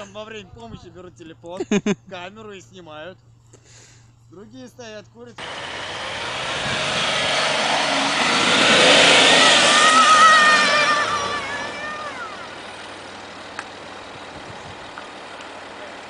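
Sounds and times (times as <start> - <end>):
engine revving hard: 5.4 - 16.0
wheels spinning in sand: 5.4 - 16.0.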